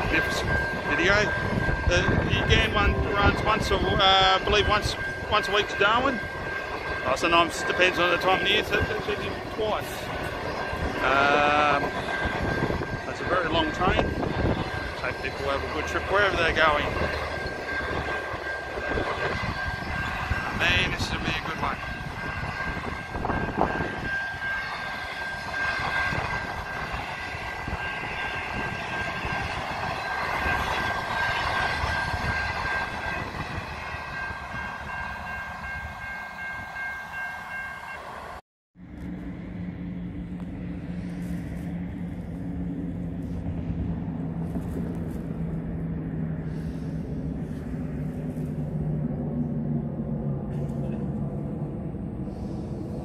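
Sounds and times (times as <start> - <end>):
high-pitched tones: 0.0 - 38.4
train wheels rumbling on rail: 0.0 - 53.0.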